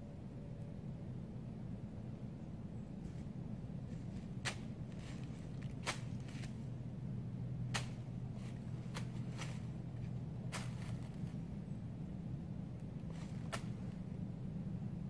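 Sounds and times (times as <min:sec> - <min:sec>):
steady low hum: 0:00.0 - 0:15.0
sharp crackles: 0:04.4 - 0:06.6, 0:07.7 - 0:11.4.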